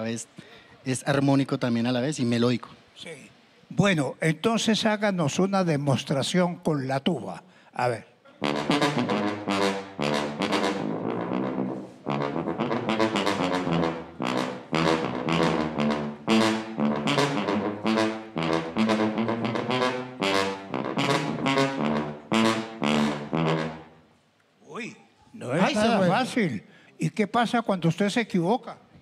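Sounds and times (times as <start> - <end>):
sousaphone bass line: 8.4 - 23.9.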